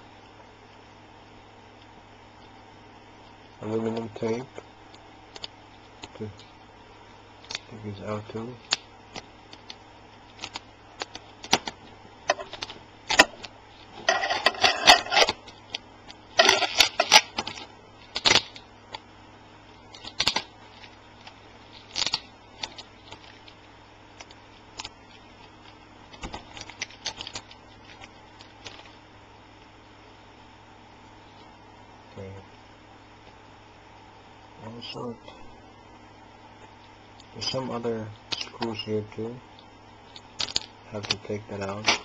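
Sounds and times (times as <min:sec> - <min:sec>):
tape peeling crinkle: 0:08.6 - 0:19.0, 0:19.7 - 0:29.0.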